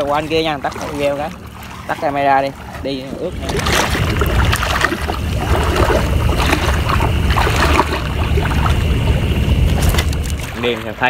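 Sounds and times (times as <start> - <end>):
low rumble: 0.0 - 11.0
wading through water: 0.0 - 11.0.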